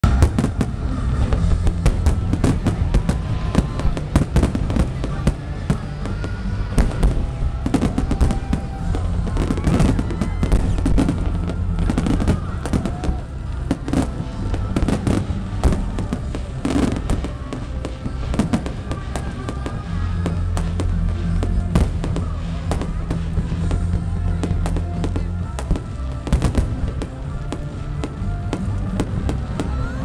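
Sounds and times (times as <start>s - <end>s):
fireworks crackling: 0.0s - 30.0s
music: 0.0s - 30.0s.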